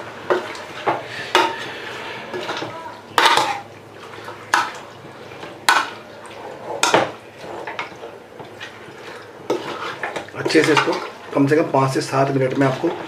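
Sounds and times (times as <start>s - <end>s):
spoon scraping cooking pot: 0.3s - 3.6s, 9.4s - 11.0s.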